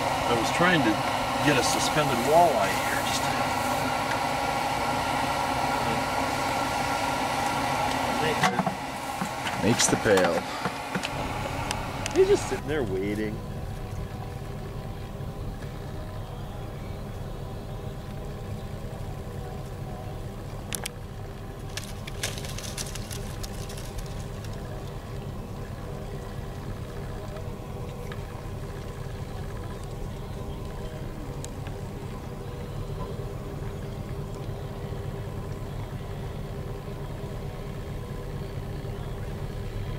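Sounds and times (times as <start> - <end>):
vehicle engine idling: 0.0 - 39.9
sharp clicks and crackles: 21.6 - 24.7.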